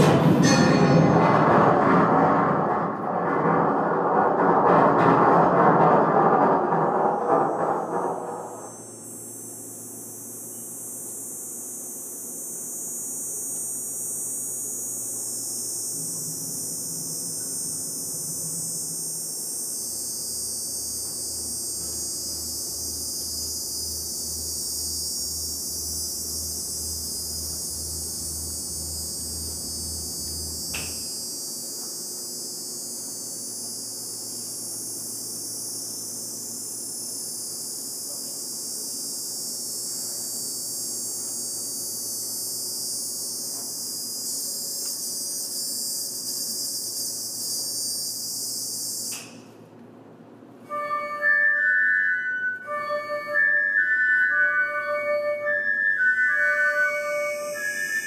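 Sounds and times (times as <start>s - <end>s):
high electronic hiss: 6.5s - 49.4s, 50.7s - 58.0s.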